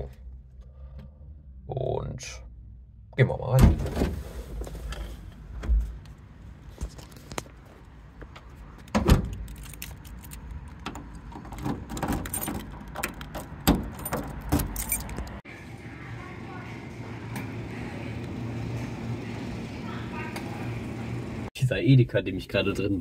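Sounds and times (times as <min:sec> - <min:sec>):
key jangling in door lock: 0:08.9 - 0:15.4.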